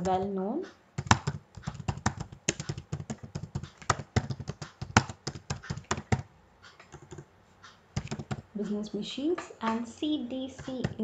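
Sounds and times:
typing on a keyboard: 1.0 - 6.3, 6.9 - 7.3, 8.0 - 8.4.

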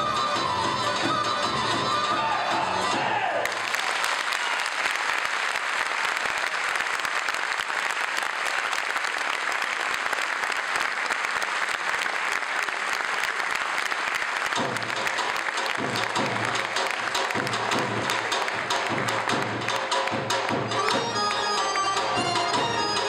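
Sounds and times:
music: 0.0 - 3.5, 14.4 - 23.0
audience applauding: 3.4 - 23.0.

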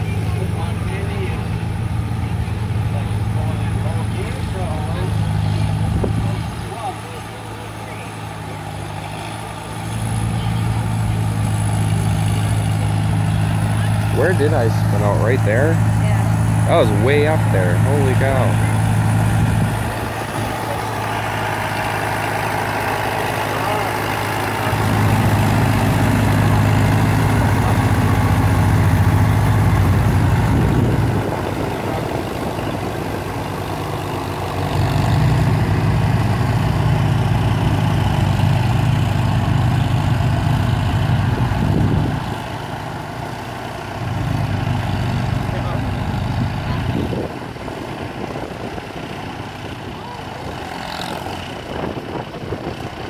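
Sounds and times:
tractor engine running: 0.0 - 53.0.

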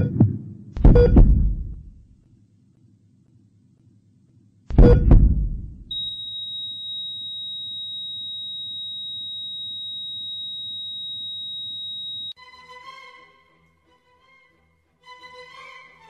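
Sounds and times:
faint low pulsing background: 0.0 - 13.1
steady high electronic tone: 5.9 - 12.4.

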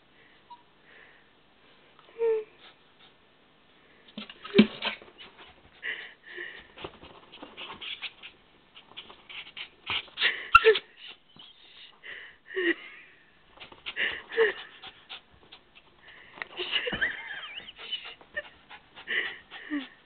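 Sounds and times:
dog panting and sniffing: 2.6 - 3.2, 4.2 - 11.6, 13.5 - 20.0
dog whining and yipping: 10.5 - 11.9, 17.3 - 18.5.

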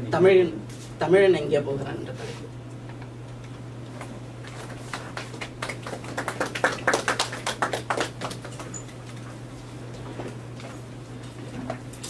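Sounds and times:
steady low hum: 0.0 - 12.0
audience clapping: 4.5 - 8.8.

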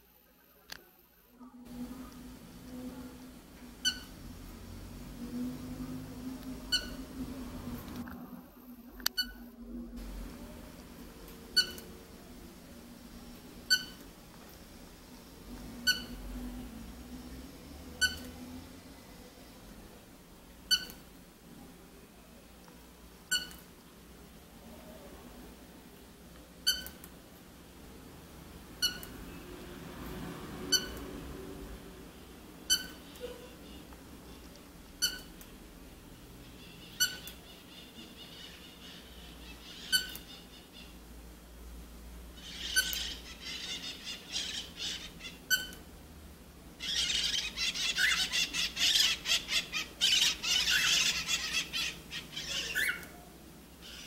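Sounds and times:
cockatiel chirps: 3.8 - 4.1, 6.7 - 7.1, 11.6 - 11.9, 13.7 - 14.0, 15.8 - 16.2, 18.0 - 18.3, 20.7 - 21.0, 23.3 - 23.7, 26.6 - 27.0, 28.8 - 29.1, 30.7 - 31.0, 32.7 - 33.9, 35.0 - 35.4, 36.6 - 41.0, 42.4 - 45.9, 46.8 - 53.2
rising squeaks: 5.2 - 8.3.

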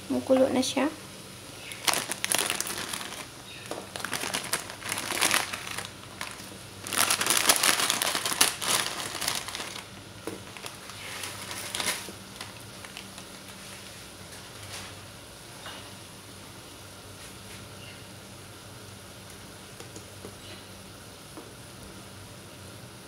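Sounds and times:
plastic packet crinkling: 1.6 - 13.5.

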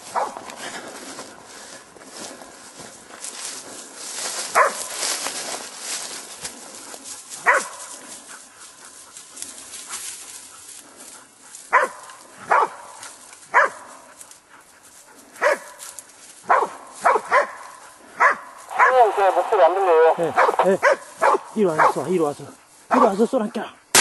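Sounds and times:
dog barking: 0.1 - 0.5, 4.5 - 5.0, 7.4 - 8.0, 11.7 - 14.2, 15.4 - 19.0, 20.4 - 22.1, 22.9 - 23.2.

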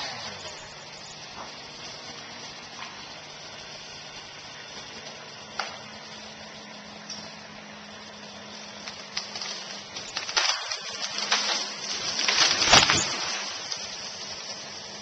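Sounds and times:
tree crashing to ground: 8.4 - 15.0
tree snapping: 8.8 - 14.6
tree crown rushing through branches: 8.8 - 15.0.

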